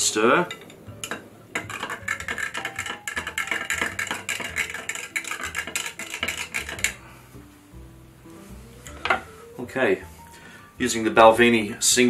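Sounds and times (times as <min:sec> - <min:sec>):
faint background music: 0:00.0 - 0:12.0
spoon clinking in glass: 0:00.5 - 0:07.0.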